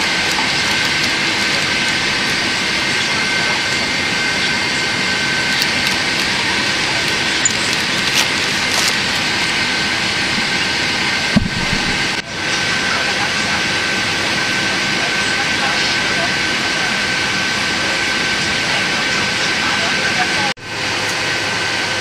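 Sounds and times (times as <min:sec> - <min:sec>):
airliner cabin noise: 0:00.0 - 0:22.0.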